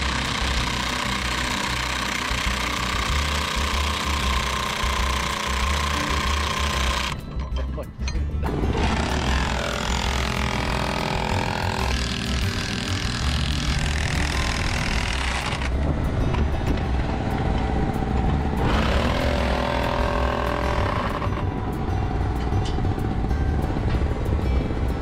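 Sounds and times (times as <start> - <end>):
cordless drill whirring: 0.0 - 7.2, 8.8 - 15.7
engine drone: 0.0 - 7.2, 8.4 - 25.0.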